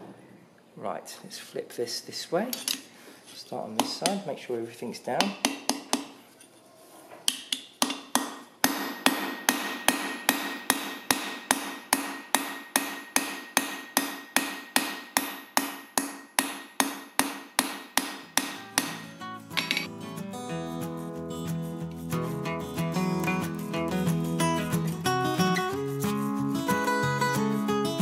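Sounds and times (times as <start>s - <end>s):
hammer striking rivet on anvil: 5.2s - 6.1s, 7.3s - 19.9s.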